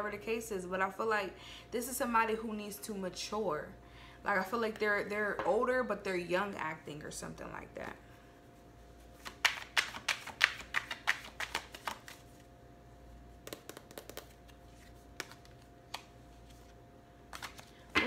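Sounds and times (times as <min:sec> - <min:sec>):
cards being shuffled: 0:09.1 - 0:12.5, 0:13.4 - 0:18.0.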